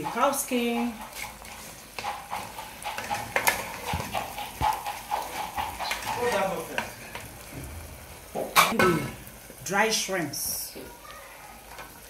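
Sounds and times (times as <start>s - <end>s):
plastic spoon scraping a pan: 0.0s - 7.4s
sauce sizzling in a pot: 0.0s - 12.0s.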